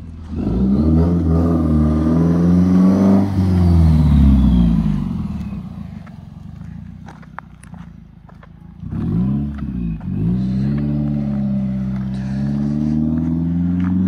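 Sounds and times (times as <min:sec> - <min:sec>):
car accelerating past: 0:00.2 - 0:06.1, 0:08.8 - 0:14.0.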